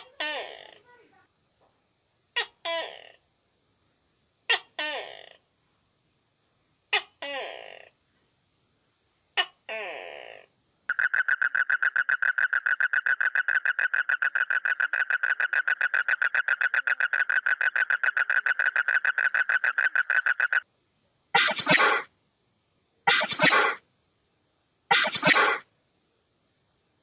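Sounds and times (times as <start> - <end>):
toad trilling: 9.4 - 20.6, 23.1 - 23.8
short hisses: 21.4 - 22.1, 23.1 - 23.8, 24.9 - 25.6.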